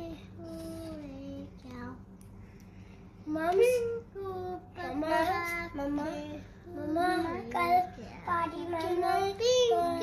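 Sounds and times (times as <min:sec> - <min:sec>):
young child singing: 0:03.3 - 0:10.0.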